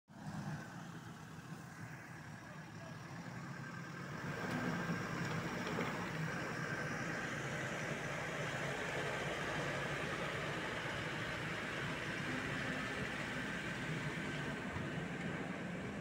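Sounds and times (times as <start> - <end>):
pickup engine idling: 0.2 - 16.0.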